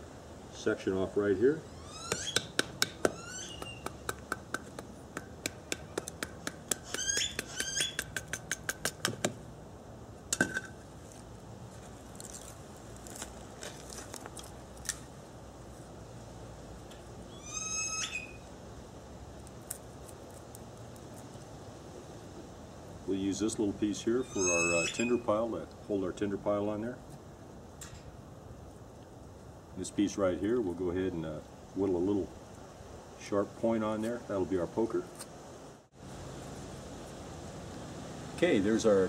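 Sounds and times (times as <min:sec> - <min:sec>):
knife cracking bamboo: 0:02.1 - 0:09.4, 0:12.1 - 0:15.1.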